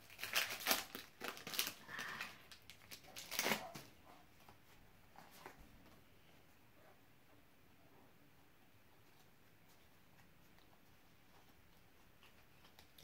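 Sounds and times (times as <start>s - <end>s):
foil wrapper crinkling: 0.0s - 3.9s.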